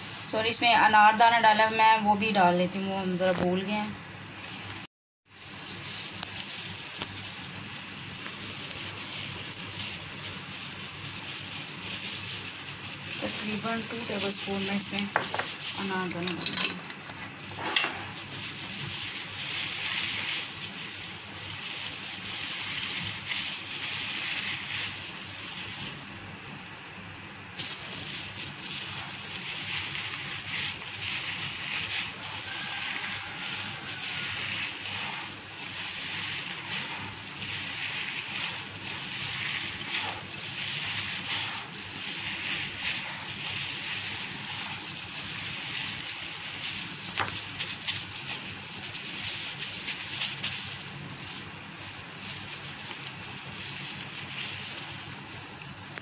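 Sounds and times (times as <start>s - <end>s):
hand kneading mince squishing: 4.6s - 16.0s, 18.2s - 26.4s, 27.6s - 56.0s.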